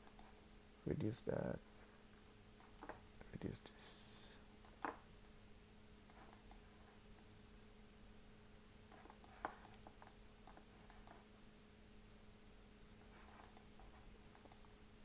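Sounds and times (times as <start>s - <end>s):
low steady hum: 0.0s - 15.0s
mouse and keyboard clicks: 2.6s - 3.3s, 8.9s - 11.2s, 13.0s - 14.7s.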